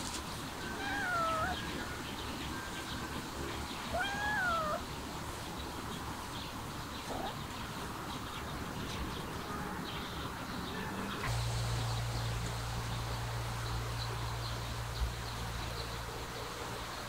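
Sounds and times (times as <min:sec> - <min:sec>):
cat meowing: 0:00.7 - 0:01.6, 0:03.9 - 0:04.8.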